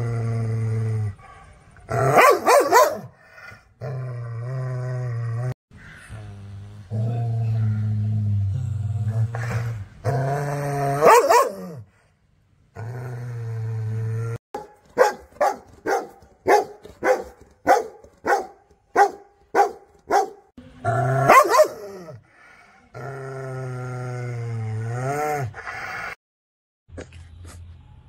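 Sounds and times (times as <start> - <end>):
dog barking: 2.1 - 3.1, 11.0 - 11.7, 14.6 - 20.5, 21.3 - 21.9.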